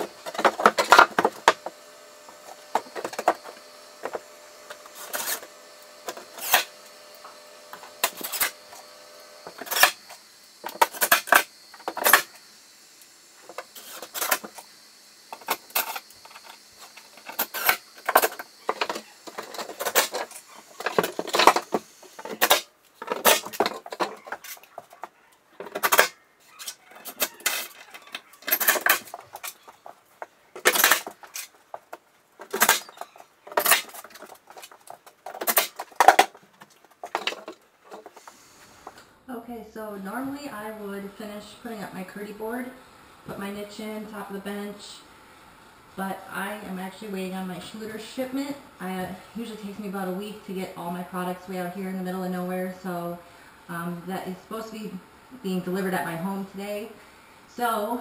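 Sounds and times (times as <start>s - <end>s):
knocks and clatter of boards: 0.3s - 1.7s.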